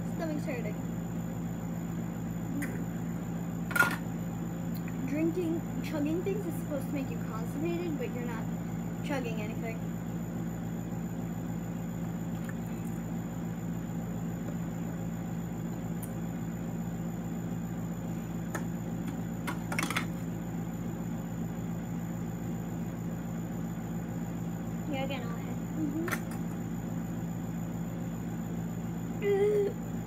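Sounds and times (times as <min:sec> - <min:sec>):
low mechanical hum: 0:00.0 - 0:30.0.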